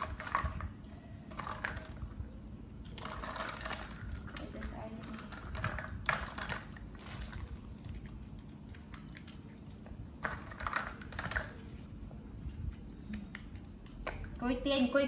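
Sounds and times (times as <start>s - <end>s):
small objects clicking and tapping: 2.9s - 11.7s, 13.0s - 14.4s.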